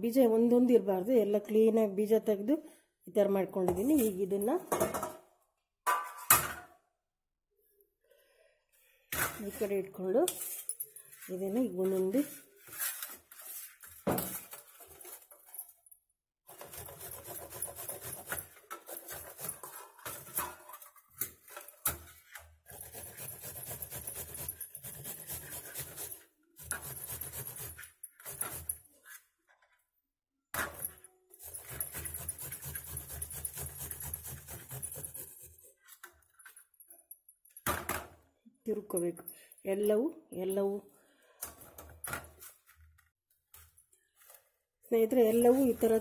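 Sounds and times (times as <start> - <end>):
apple rasping on metal grater: 22.8 - 28.6, 31.5 - 35.6.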